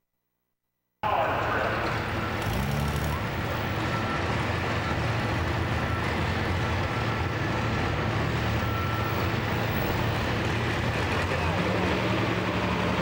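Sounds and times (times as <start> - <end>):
engines idling: 1.0 - 13.0.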